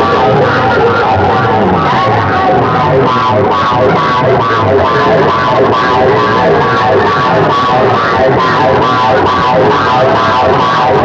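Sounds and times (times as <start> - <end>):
loud music through loudspeakers: 0.0 - 11.0.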